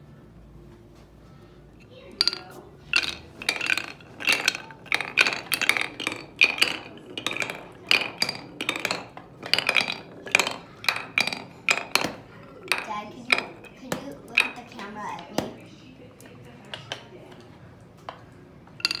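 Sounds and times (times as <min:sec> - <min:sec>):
glass marbles clicking on wood: 0:02.2 - 0:15.6, 0:18.8 - 0:19.0.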